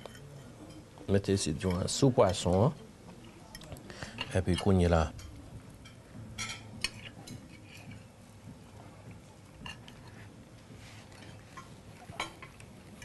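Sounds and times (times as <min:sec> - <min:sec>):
cutlery clinking on a plate: 0:00.0 - 0:00.9, 0:03.5 - 0:08.1, 0:09.6 - 0:10.2, 0:11.1 - 0:13.0.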